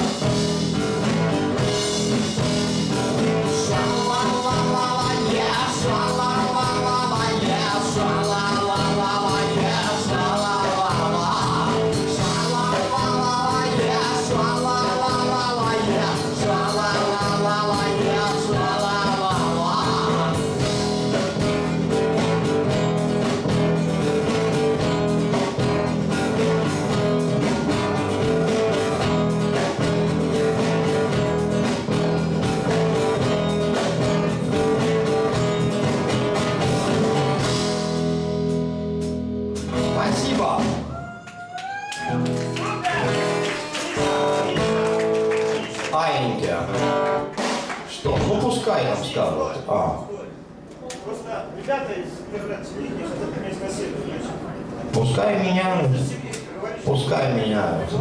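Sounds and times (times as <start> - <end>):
live rock band playing: 0.0 - 41.1, 41.9 - 48.7
woman singing: 3.6 - 20.4.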